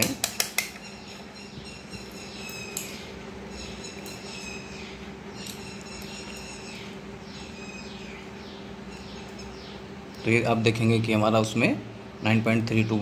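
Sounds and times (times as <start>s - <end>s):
small birds chirping: 0.0s - 13.0s
steady low hum: 0.0s - 13.0s.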